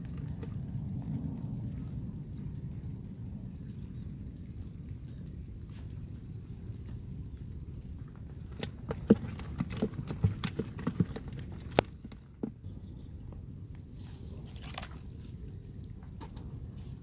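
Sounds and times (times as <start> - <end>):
steady low rumble: 0.0 - 9.4.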